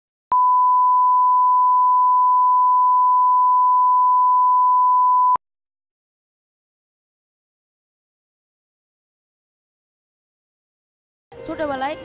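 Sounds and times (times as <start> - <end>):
steady pure test tone: 0.3 - 5.4.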